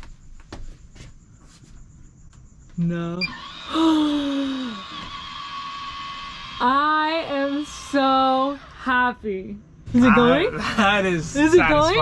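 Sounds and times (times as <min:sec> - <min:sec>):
roof vent fan whining: 0:03.1 - 0:12.0
person speaking excitedly: 0:09.9 - 0:12.0.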